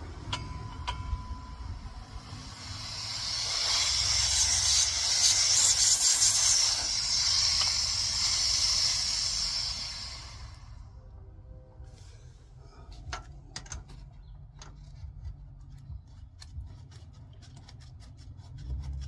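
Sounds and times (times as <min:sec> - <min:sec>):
nitrogen hissing through lines: 0:02.0 - 0:10.9.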